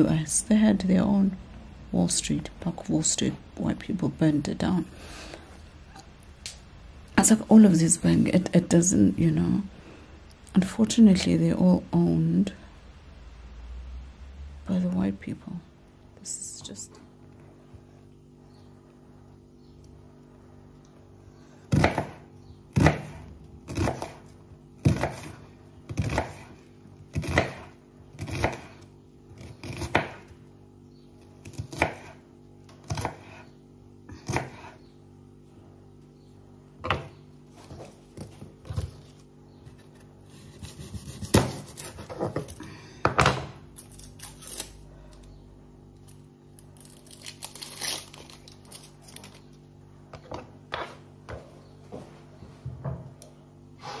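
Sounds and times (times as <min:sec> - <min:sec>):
knife chopping on wooden board: 0:21.7 - 0:24.2, 0:24.8 - 0:26.5, 0:27.1 - 0:28.7, 0:29.4 - 0:30.3, 0:31.4 - 0:32.2, 0:32.8 - 0:33.4, 0:34.2 - 0:34.7, 0:40.5 - 0:42.5.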